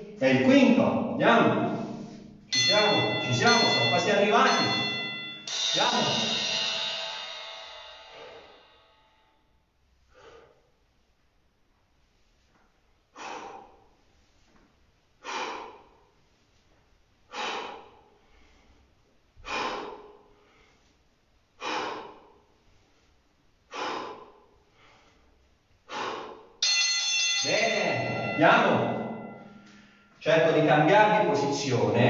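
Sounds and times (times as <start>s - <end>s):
man breathing hard: 7.9s - 8.9s, 10.0s - 11.1s, 13.0s - 26.6s, 28.1s - 30.2s
forceful exhales: 8.0s - 8.9s, 10.1s - 10.8s, 13.1s - 13.9s, 15.2s - 16.0s, 17.3s - 20.9s, 21.6s - 23.0s, 23.7s - 26.6s.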